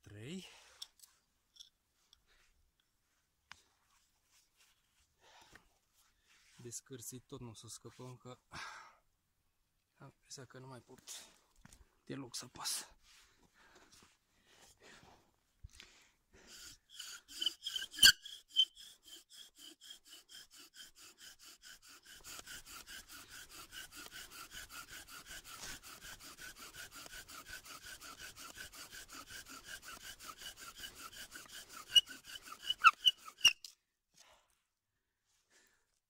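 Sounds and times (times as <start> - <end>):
bow drill spindle squeaking: 16.5 - 33.8.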